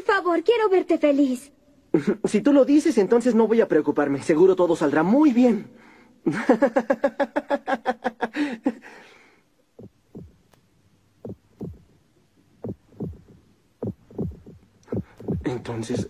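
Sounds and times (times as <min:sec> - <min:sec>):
cartoon heartbeat thumps: 0:09.7 - 0:10.5, 0:11.2 - 0:12.0, 0:12.6 - 0:16.0.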